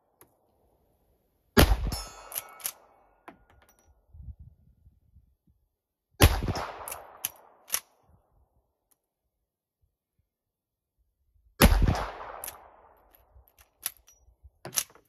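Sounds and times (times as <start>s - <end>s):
rifle shot: 1.6s - 2.9s, 6.2s - 7.9s, 11.6s - 13.0s.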